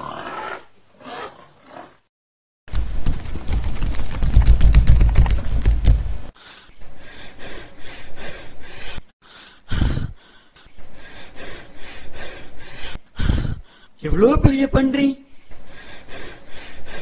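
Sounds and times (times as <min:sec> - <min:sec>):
low rumble with fast clatter: 0:02.7 - 0:06.3
rapid heavy panting: 0:03.0 - 0:14.0, 0:15.3 - 0:17.0.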